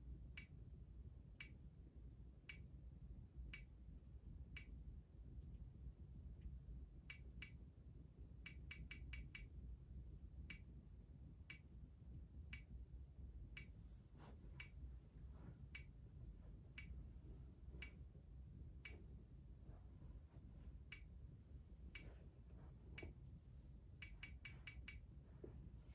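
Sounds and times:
low hum: 9.8s - 25.9s.

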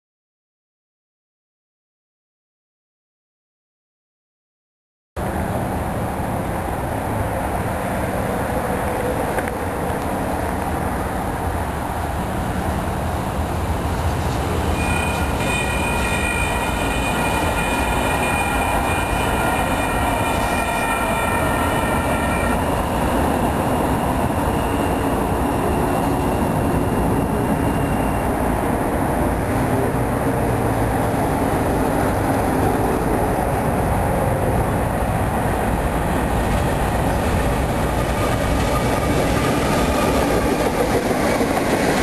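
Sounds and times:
train rumble: 5.2s - 42.0s
high steady tones: 14.8s - 28.6s.

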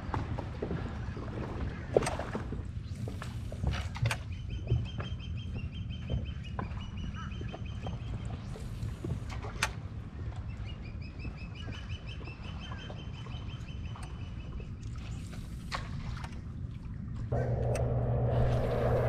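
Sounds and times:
low rumble: 16.9s - 19.0s.

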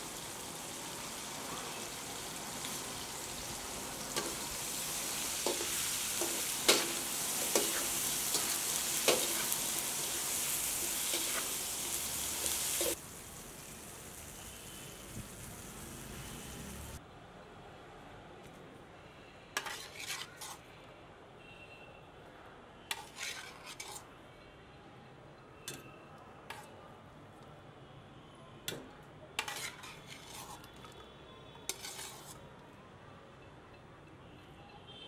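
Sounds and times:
metal spatula clinking and scraping: 4.1s - 13.0s, 19.6s - 20.6s, 22.9s - 24.1s, 26.5s - 26.8s, 29.4s - 31.0s, 31.7s - 32.4s.

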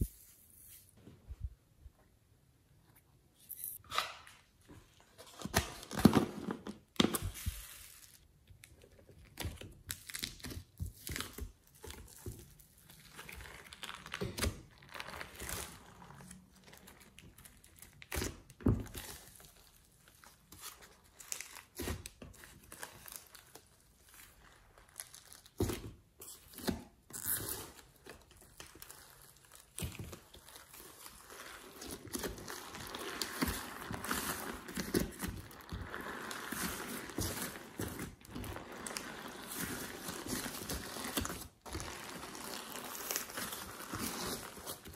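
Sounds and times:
hands squishing slime: 28.4s - 44.9s.

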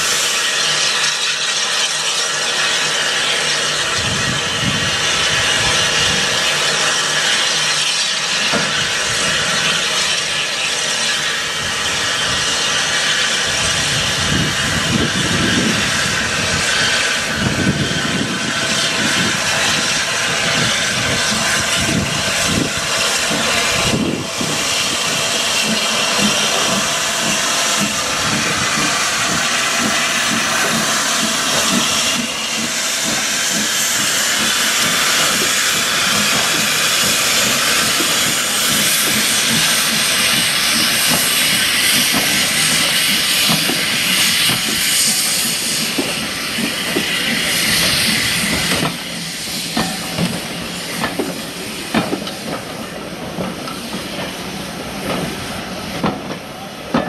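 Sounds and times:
steam hissing: 0.0s - 57.0s.

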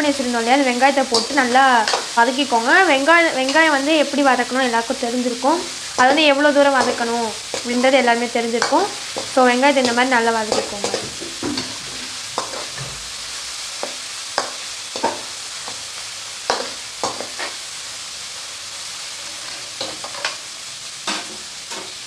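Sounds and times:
onions sizzling in hot oil: 0.0s - 22.0s
steel spoon scraping a pan: 0.9s - 2.6s, 5.6s - 17.8s, 18.9s - 22.0s.

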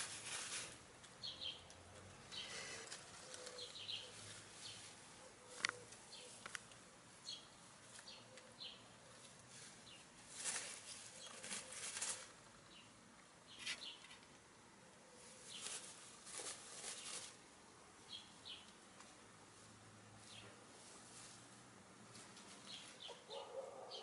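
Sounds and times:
hens scratching in grass: 0.0s - 1.0s, 2.5s - 6.5s, 9.1s - 12.6s, 15.2s - 17.5s, 19.4s - 23.4s.

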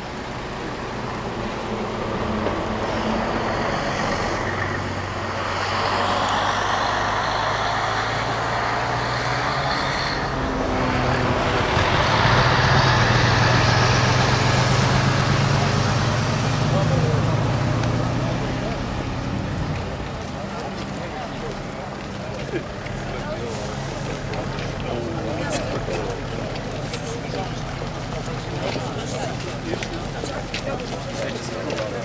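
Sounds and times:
large vehicle engine humming: 0.0s - 32.0s.

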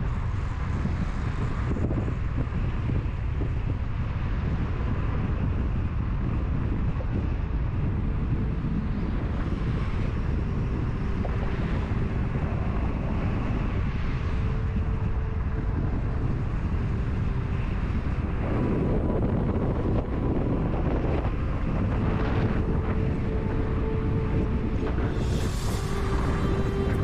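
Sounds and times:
road traffic rumble: 0.0s - 27.0s
wind buffeting microphone: 0.0s - 27.0s.

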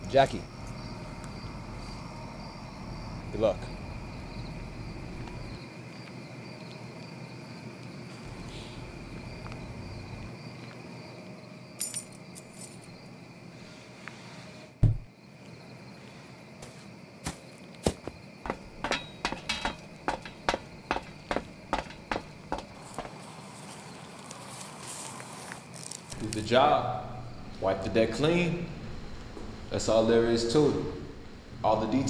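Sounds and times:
insects chirring: 0.0s - 32.0s
faint clinks: 11.8s - 13.0s
low thud: 14.8s - 15.1s
footsteps on stairs: 16.6s - 23.2s.

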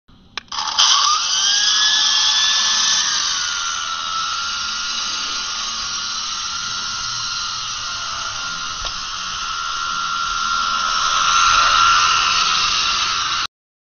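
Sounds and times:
click: 0.4s - 1.0s
toy helicopter motors whining: 0.4s - 13.5s.

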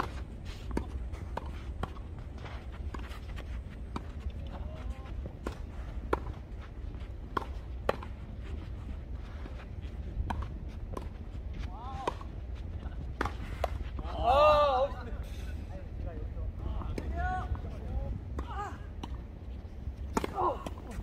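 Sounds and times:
footsteps on court: 0.0s - 14.1s
tennis ball bounces: 7.3s - 8.2s
tennis rackets striking balls: 20.1s - 21.0s.

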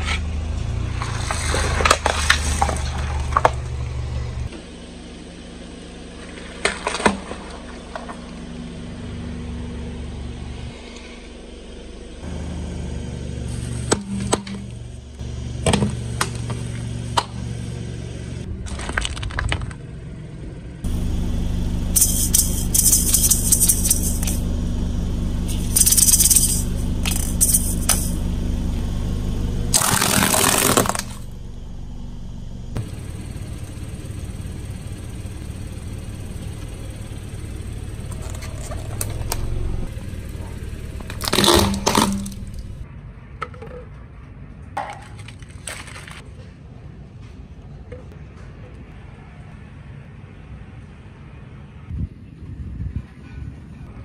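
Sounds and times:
car engine running: 0.0s - 42.9s
watermelons cracking under tyre: 18.6s - 19.8s, 29.7s - 31.2s, 41.0s - 42.6s
crunching bursts: 20.9s - 28.9s, 29.6s - 42.8s.

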